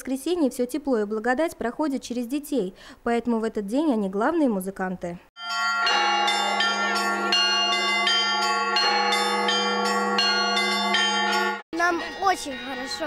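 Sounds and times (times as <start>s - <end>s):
low bell hum: 5.4s - 13.0s
small bells ringing quickly: 5.4s - 13.0s.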